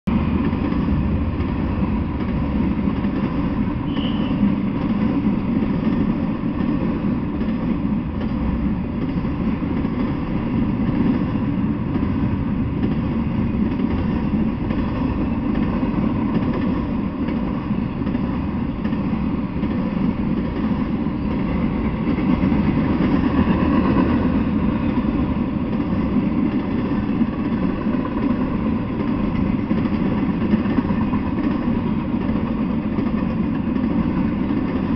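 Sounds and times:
freight train rolling past: 0:00.1 - 0:34.9.

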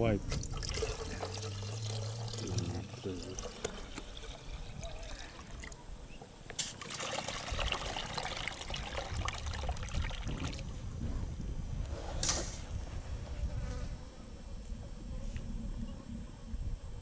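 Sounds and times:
water pouring into metal basin: 0:00.3 - 0:05.8, 0:06.7 - 0:10.7.

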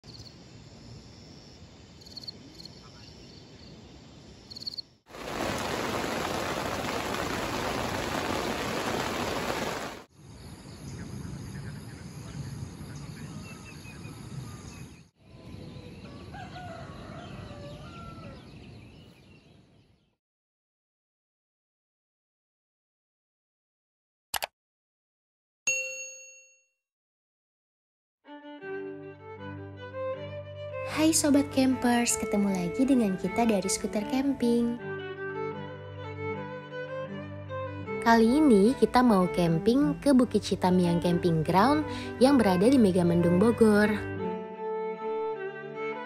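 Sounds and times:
rooster crowing: 0:16.0 - 0:18.6.

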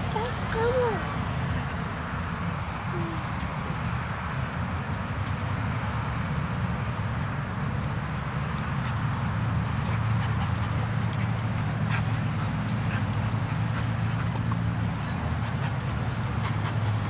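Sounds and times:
dogs playing: 0:07.9 - 0:17.0.

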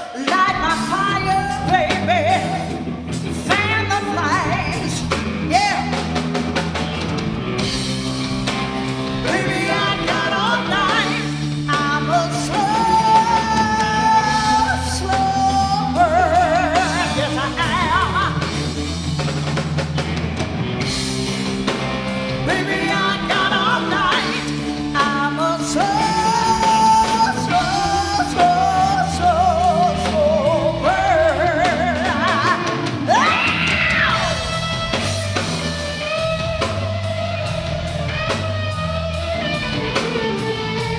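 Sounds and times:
woman singing: 0:00.0 - 0:02.8, 0:03.4 - 0:06.0, 0:09.2 - 0:18.6, 0:22.4 - 0:34.5
bass guitar: 0:00.0 - 0:40.9
drum kit: 0:00.0 - 0:40.9
electric guitar: 0:00.0 - 0:40.9.

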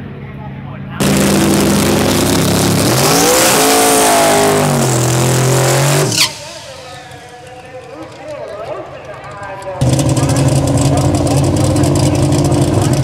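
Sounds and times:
truck engine revving: 0:01.0 - 0:07.7, 0:09.8 - 0:13.0.

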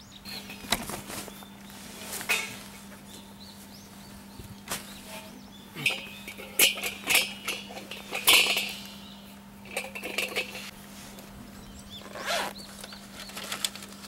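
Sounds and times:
metal legs clanking: 0:05.1 - 0:10.7.

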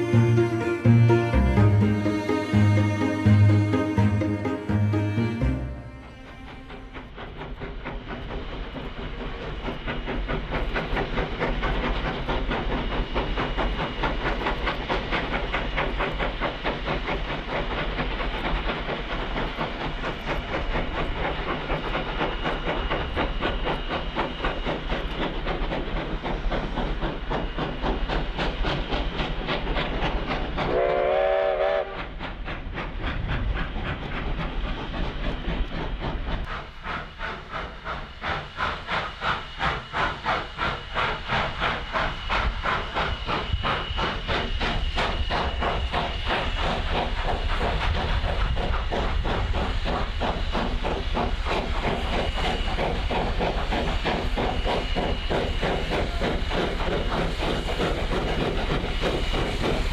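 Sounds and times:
train whistle blast: 0:00.0 - 0:07.2, 0:30.7 - 0:32.1
train wheels clattering: 0:00.0 - 0:59.9.

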